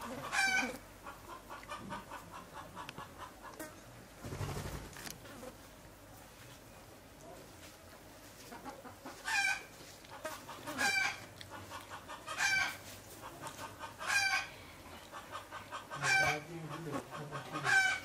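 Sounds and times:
chicken clucking and calling: 0.0s - 3.6s, 8.4s - 18.0s.

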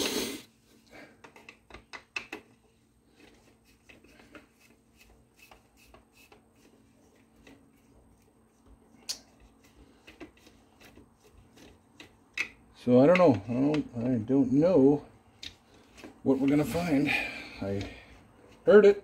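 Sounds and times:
clicks and taps of tools: 1.2s - 2.6s, 11.6s - 14.1s.

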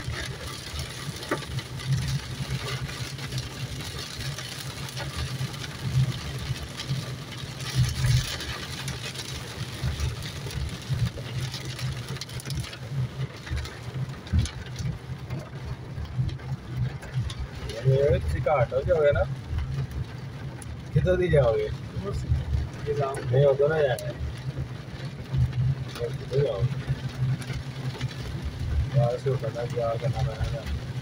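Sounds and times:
car engine and road rumble: 0.0s - 31.0s
heavy rain on car roof: 0.0s - 31.0s.

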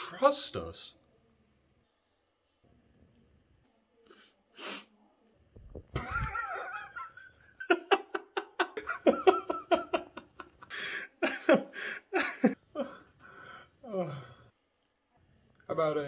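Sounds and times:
man laughing heartily: 5.9s - 13.0s.

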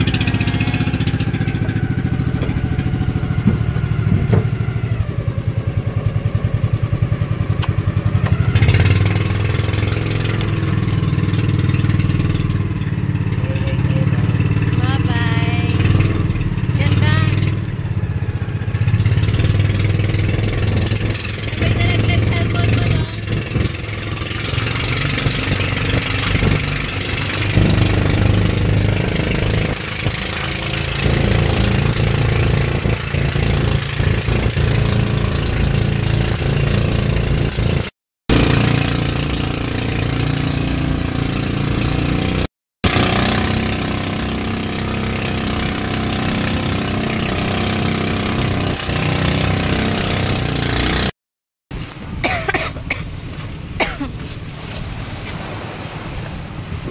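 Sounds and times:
boat engine running: 0.0s - 51.1s, 51.7s - 56.9s
wind: 0.0s - 56.9s
waves washing onto shore: 53.0s - 56.9s.

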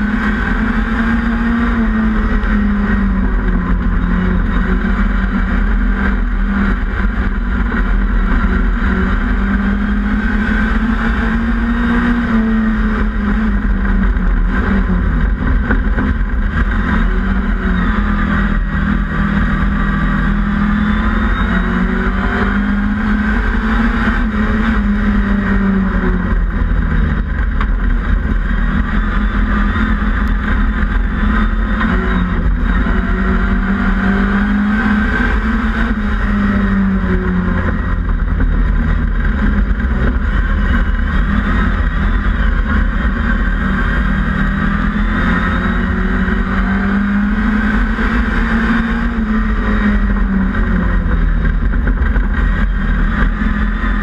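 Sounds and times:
car rumbling over rough track: 0.0s - 54.0s
racing car engine revving: 0.0s - 54.0s.

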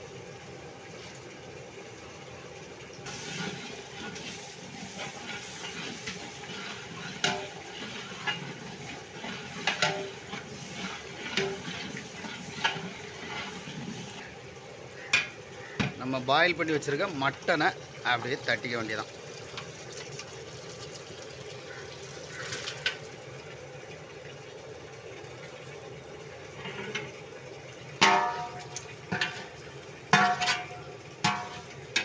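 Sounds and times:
ladle scraping thick food in pot: 3.1s - 14.3s, 28.3s - 29.6s
ladle clanking against pot: 7.2s - 7.6s, 9.6s - 10.3s, 28.0s - 32.0s.

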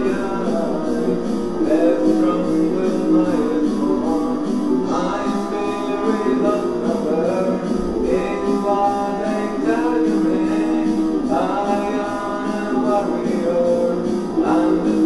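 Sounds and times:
man singing: 0.0s - 15.0s.

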